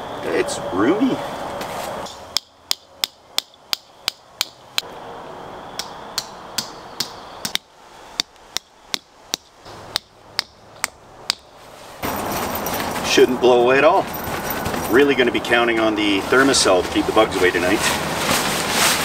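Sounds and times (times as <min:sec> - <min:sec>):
hammer striking tent stake: 0:02.0 - 0:04.6, 0:05.8 - 0:11.5.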